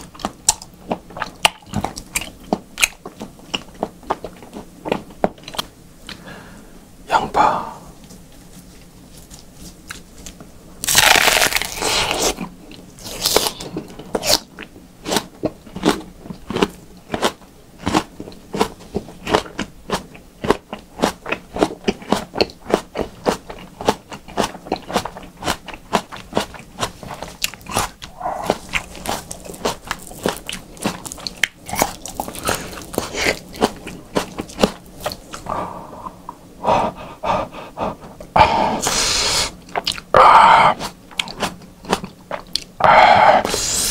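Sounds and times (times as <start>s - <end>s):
chewing onion: 0.0s - 6.2s, 8.0s - 43.9s
crunching raw onion: 9.1s - 35.5s.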